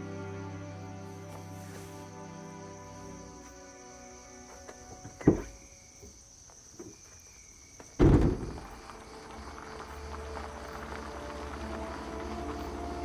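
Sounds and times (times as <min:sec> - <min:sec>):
heavy thuds: 0:07.9 - 0:08.8.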